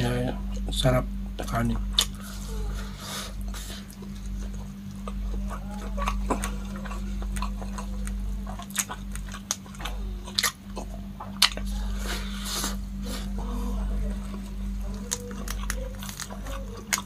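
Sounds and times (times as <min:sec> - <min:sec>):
steady low hum: 0:00.0 - 0:17.0
wet food squishes: 0:03.4 - 0:17.0.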